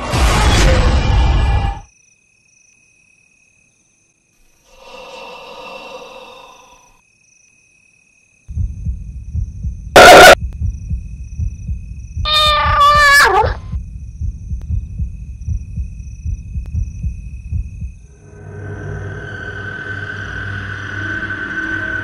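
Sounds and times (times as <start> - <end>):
eerie drawn-out tone: 18.1 - 22.0.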